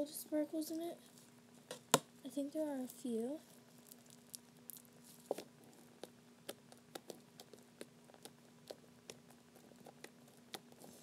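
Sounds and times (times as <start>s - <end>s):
slime clicking and popping: 3.9s - 10.8s.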